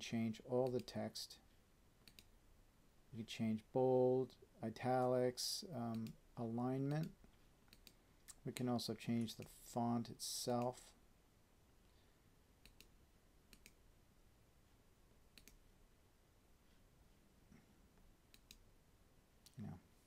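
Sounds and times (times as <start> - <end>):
computer mouse clicks: 2.0 - 2.3, 5.9 - 6.2, 7.0 - 8.4, 12.6 - 13.8, 15.3 - 15.6, 18.3 - 18.6.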